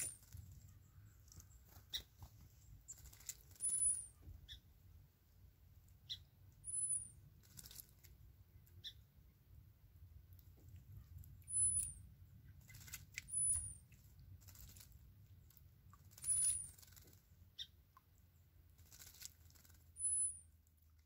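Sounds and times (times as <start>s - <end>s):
high thin chirp: 2.9s - 4.6s, 6.1s - 7.2s, 11.4s - 12.0s, 13.2s - 13.9s, 16.1s - 16.9s, 19.6s - 20.6s
bird wings splashing water: 12.6s - 15.0s.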